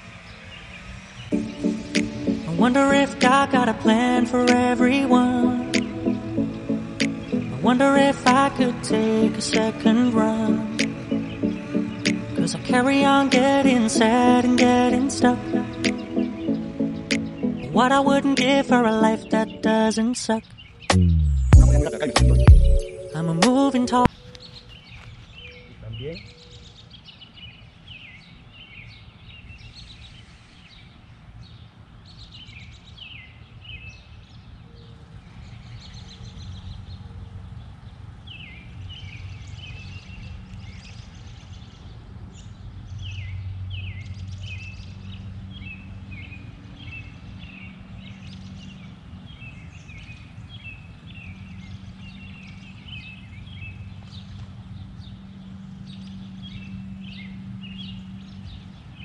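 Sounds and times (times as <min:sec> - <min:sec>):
small birds chirping: 0:00.0 - 0:59.0
steady low rumble: 0:21.0 - 0:22.8.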